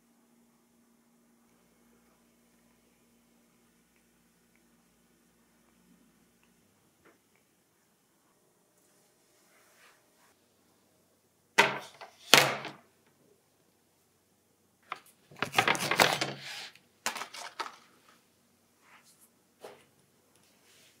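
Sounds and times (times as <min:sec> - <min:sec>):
things set down on wooden table: 0:11.6 - 0:12.8.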